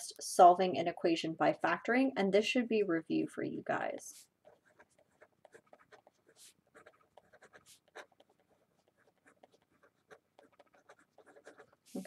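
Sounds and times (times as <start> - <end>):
pen scratching on paper: 4.1 - 12.0.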